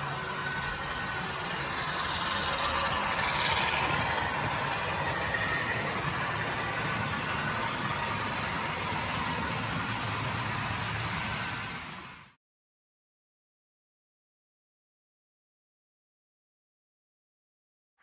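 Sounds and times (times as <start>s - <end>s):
diesel engine through small speaker: 0.0s - 12.0s
model wheels rumbling on track: 0.0s - 12.3s.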